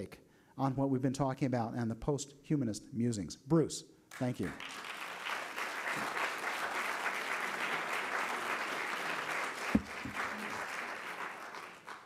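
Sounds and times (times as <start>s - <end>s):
audience applauding: 4.1s - 12.0s.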